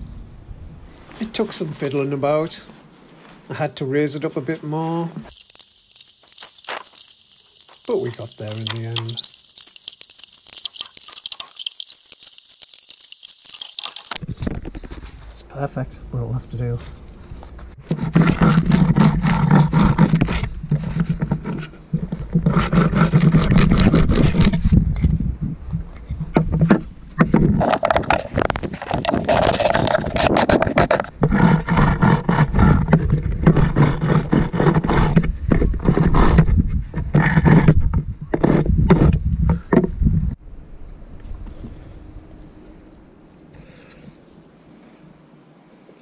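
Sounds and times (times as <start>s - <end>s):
wire brush scraping metal: 5.3s - 14.2s.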